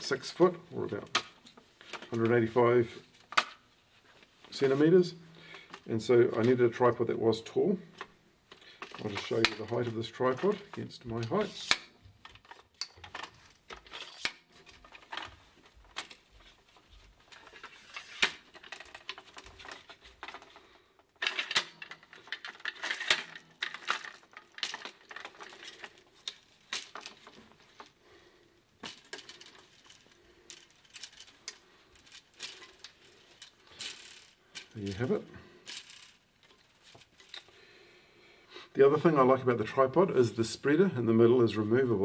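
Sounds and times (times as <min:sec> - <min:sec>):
metal tripod legs clattering: 0:08.0 - 0:28.0, 0:28.8 - 0:37.5.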